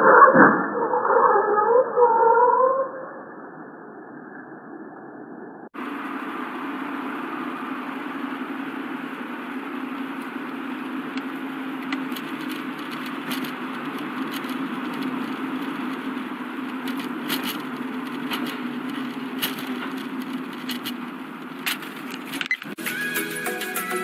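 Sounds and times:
car road and engine noise: 0:05.7 - 0:24.0
clicks and rattles: 0:11.1 - 0:22.8.

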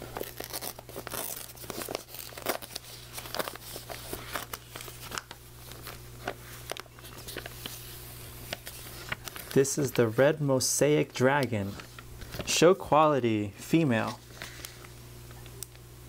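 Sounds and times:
newspaper crinkling and tearing: 0:00.0 - 0:12.9.

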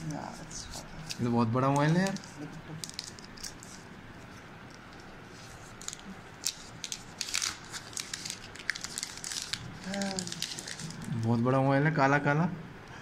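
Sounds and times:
plastic wrapping crinkling: 0:00.5 - 0:11.4.

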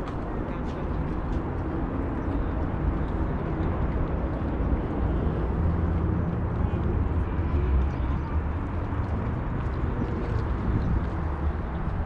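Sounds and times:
city background rumble: 0:00.0 - 0:12.0.

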